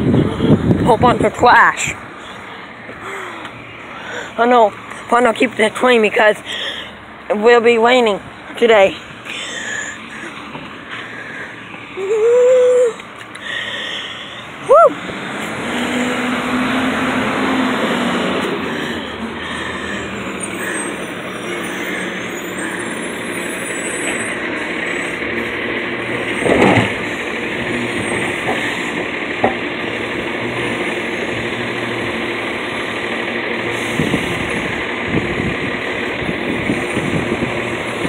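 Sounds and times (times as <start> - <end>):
garbage truck engine running: 13.3 - 38.0.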